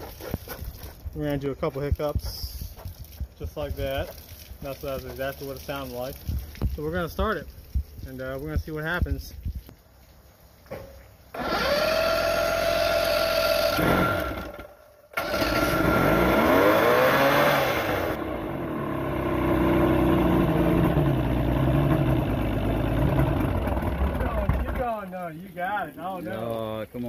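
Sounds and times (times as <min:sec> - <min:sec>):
outboard motor cranking whine: 0:11.3 - 0:24.8.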